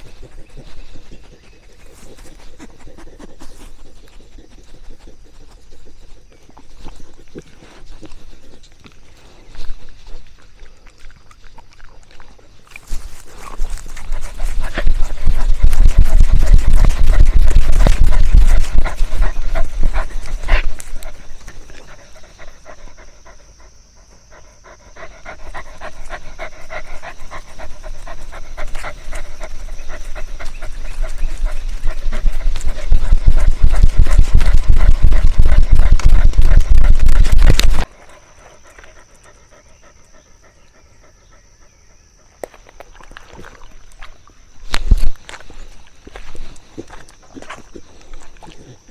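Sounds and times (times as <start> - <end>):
dog panting rapidly: 0.0 - 8.7, 13.0 - 42.0
rustles and clicks: 12.6 - 22.0, 26.8 - 37.9.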